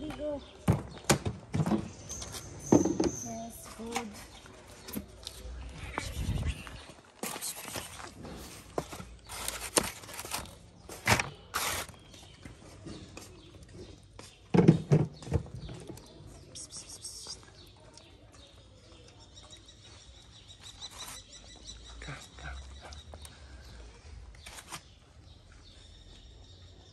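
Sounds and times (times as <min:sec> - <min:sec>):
plastic trays knocking on concrete: 0:14.5 - 0:15.8
faint bird chirps: 0:16.0 - 0:24.6.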